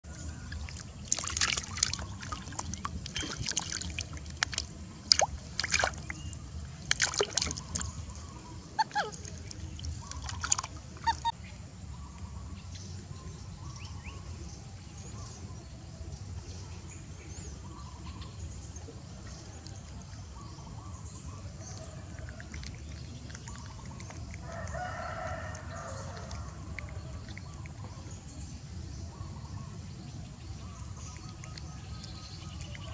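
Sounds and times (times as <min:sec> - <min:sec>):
water splashing: 0:00.1 - 0:11.3, 0:21.7 - 0:28.1.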